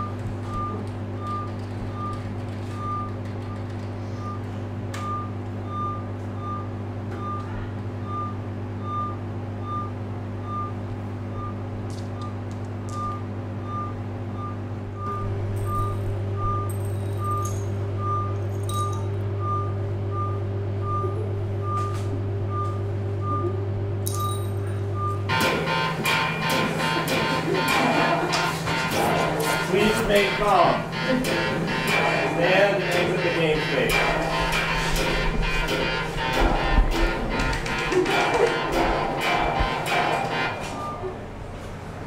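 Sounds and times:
low electronic drone hum: 0.0 - 42.0.

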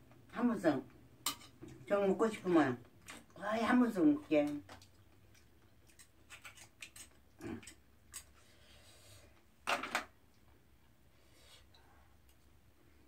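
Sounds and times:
utensil scraping oyster shell: 6.0 - 8.4.

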